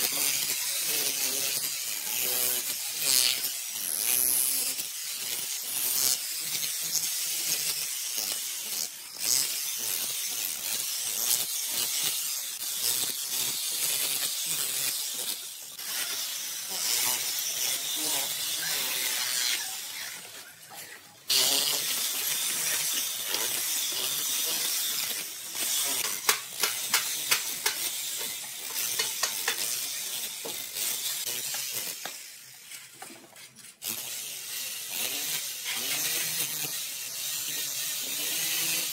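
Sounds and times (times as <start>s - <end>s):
demolition hammer chipping tiles: 25.6s - 30.7s.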